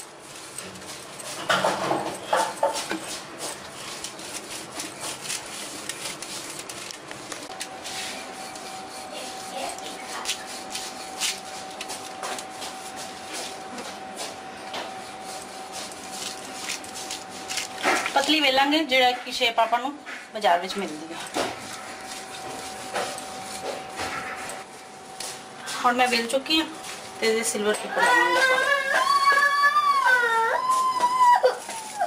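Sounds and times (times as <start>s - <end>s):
rolling pin rubbing over dough: 0.0s - 6.8s, 7.8s - 18.5s, 20.8s - 24.8s
plastic sheet crinkling: 3.2s - 8.1s, 15.7s - 18.6s.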